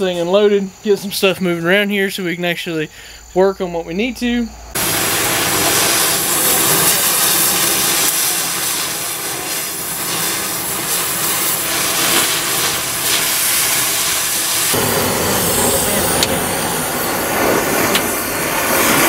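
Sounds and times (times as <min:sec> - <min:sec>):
cutting torch hissing: 0:04.7 - 0:19.0.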